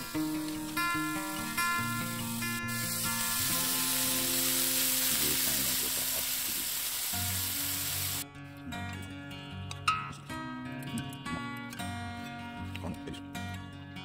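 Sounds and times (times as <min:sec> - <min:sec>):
food sizzling in a pan: 0:00.0 - 0:08.2
background music: 0:00.0 - 0:14.0.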